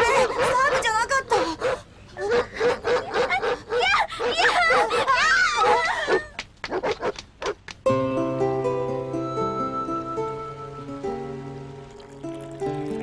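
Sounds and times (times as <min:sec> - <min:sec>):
people calling and laughing: 0:02.2 - 0:06.4
music: 0:07.9 - 0:13.0.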